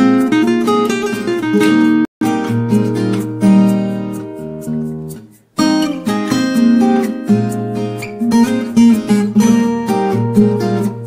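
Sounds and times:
acoustic guitar music: 0:00.0 - 0:11.0.

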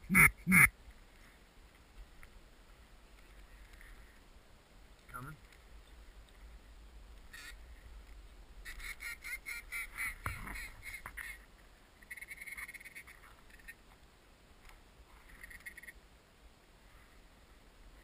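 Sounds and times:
duck quacking: 0:00.0 - 0:00.7, 0:07.3 - 0:07.6, 0:08.6 - 0:11.4.

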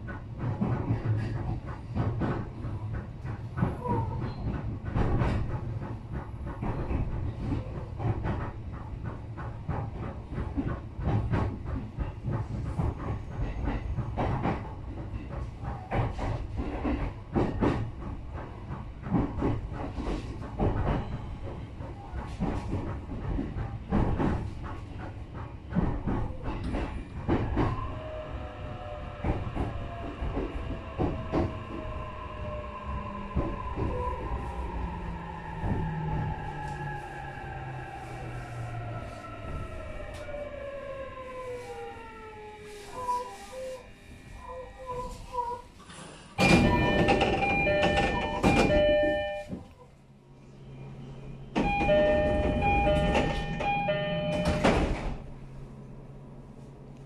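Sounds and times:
low train rumble: 0:00.0 - 0:57.0
electronic door chime: 0:46.4 - 0:49.5, 0:51.6 - 0:54.7.

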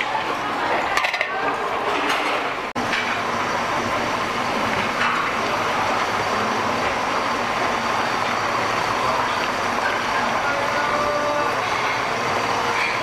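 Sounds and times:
low kitchen rumble: 0:00.0 - 0:13.0.

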